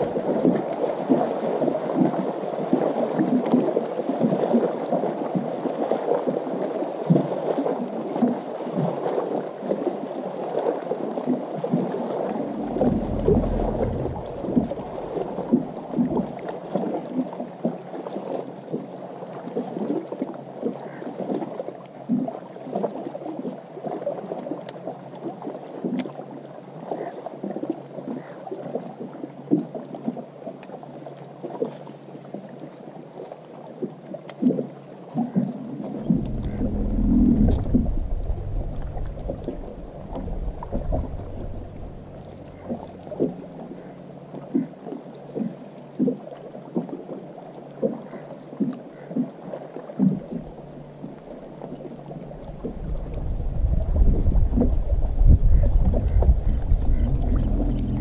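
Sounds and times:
waves slapping boat hull: 0:00.0 - 0:26.3, 0:31.4 - 0:58.0
low rumble: 0:12.0 - 0:16.4, 0:35.7 - 0:44.5, 0:50.2 - 0:58.0.

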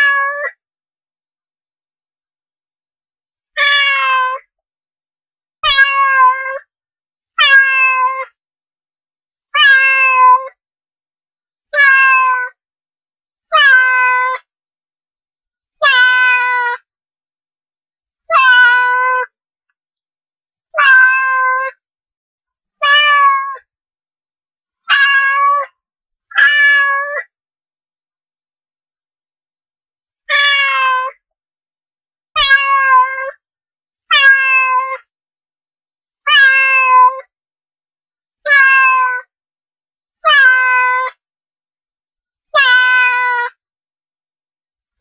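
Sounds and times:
cat meowing: 0:00.0 - 0:00.5, 0:03.6 - 0:04.4, 0:05.6 - 0:06.6, 0:07.4 - 0:08.3, 0:09.6 - 0:10.6, 0:11.7 - 0:12.6, 0:13.5 - 0:14.4, 0:15.8 - 0:16.8, 0:18.3 - 0:19.3, 0:20.8 - 0:21.8, 0:22.8 - 0:23.6, 0:24.9 - 0:25.7, 0:26.3 - 0:27.3, 0:30.3 - 0:31.2, 0:32.4 - 0:33.4, 0:34.1 - 0:35.0, 0:36.3 - 0:37.3, 0:38.4 - 0:39.3, 0:40.2 - 0:41.2, 0:42.6 - 0:43.5.

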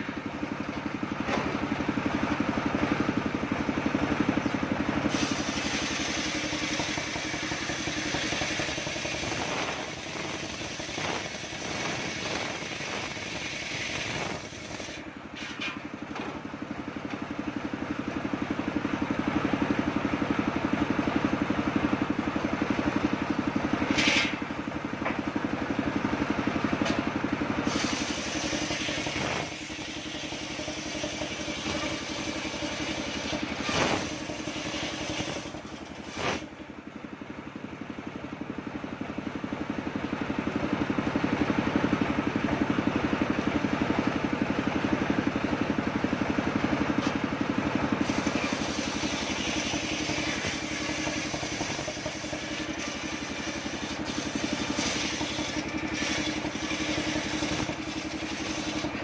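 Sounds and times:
sawbench engine running: 0:00.0 - 0:59.0
saw blade ripping wood: 0:05.1 - 0:15.8, 0:23.9 - 0:24.4, 0:27.7 - 0:36.5, 0:48.0 - 0:59.0.

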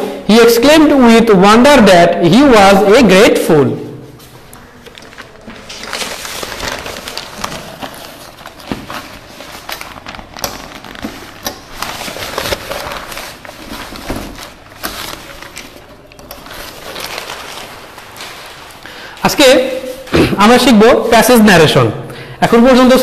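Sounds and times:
paper sheets rustling: 0:04.1 - 0:21.8.

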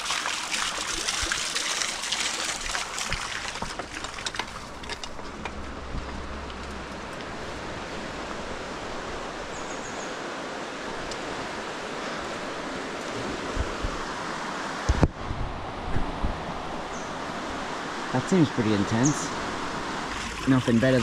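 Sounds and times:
water splashes: 0:00.0 - 0:05.4, 0:18.0 - 0:21.0
water rushing at waterwheel: 0:00.0 - 0:15.0, 0:16.4 - 0:21.0.

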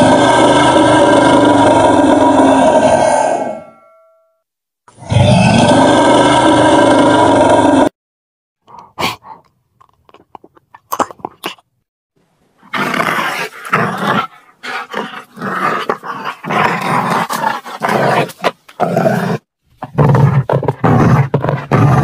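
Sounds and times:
animal growling and roaring: 0:00.0 - 0:03.8, 0:04.9 - 0:08.0, 0:12.7 - 0:22.0.

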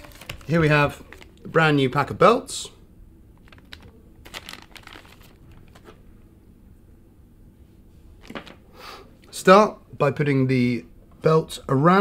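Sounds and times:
plastic bag crinkling: 0:00.0 - 0:01.5, 0:03.4 - 0:06.0.

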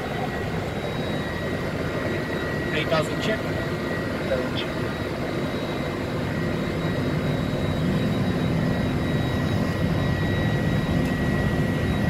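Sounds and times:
airflow and jet engine rush: 0:00.0 - 0:12.0
thin steady high tone: 0:00.0 - 0:12.0.

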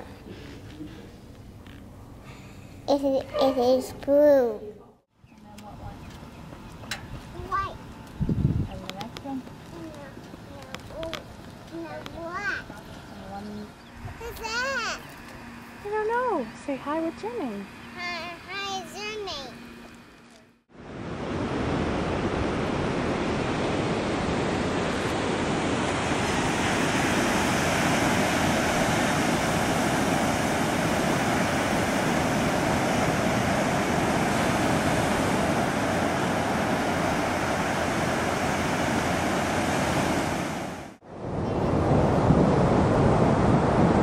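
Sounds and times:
wind on microphone: 0:08.1 - 0:09.3, 0:20.8 - 0:44.0
surf breaking on a beach: 0:20.8 - 0:44.0.

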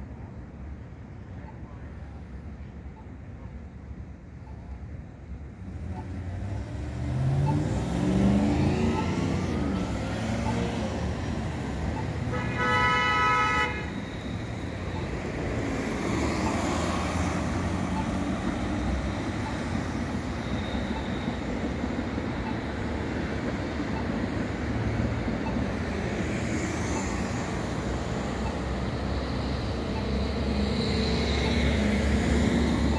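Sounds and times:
road traffic noise: 0:00.0 - 0:32.9
vehicles pulling away: 0:05.6 - 0:12.4
car horn toot: 0:12.2 - 0:13.9.

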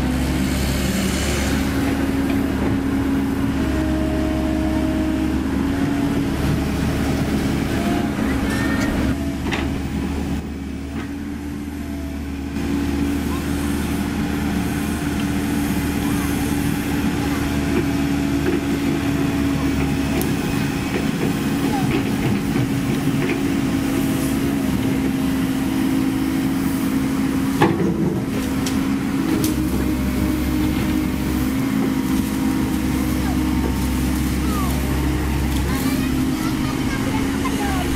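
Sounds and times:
excavator diesel engine running: 0:00.0 - 0:37.9
steel tracks moving: 0:26.6 - 0:37.9.

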